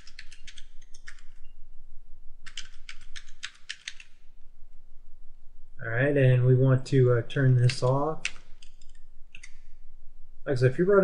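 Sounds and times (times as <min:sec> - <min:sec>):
computer keyboard typing: 0:00.0 - 0:01.4, 0:02.4 - 0:04.2, 0:07.5 - 0:09.6.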